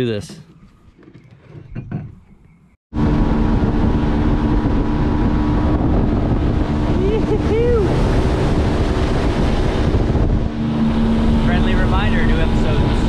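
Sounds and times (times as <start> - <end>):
outboard motor droning: 2.9 - 13.0
wind on microphone: 2.9 - 13.0
rushing water: 3.3 - 13.0.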